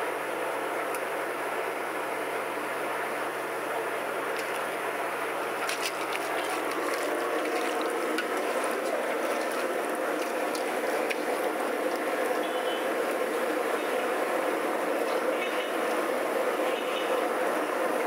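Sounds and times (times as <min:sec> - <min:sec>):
wet squelching of mixing by hand: 0:04.3 - 0:18.0.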